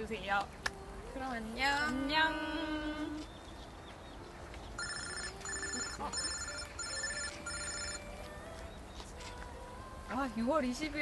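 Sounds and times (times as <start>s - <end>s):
phone ringtone beeps: 4.8s - 8.2s.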